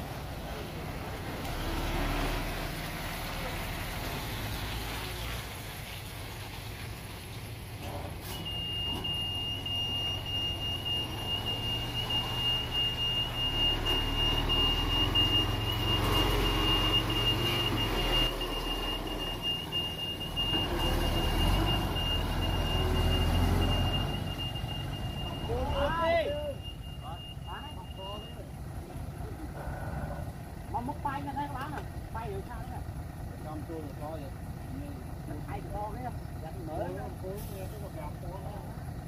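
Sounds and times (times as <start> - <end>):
truck engine rumble: 0.0 - 39.0
high-pitched electronic alarm tone: 8.5 - 28.5.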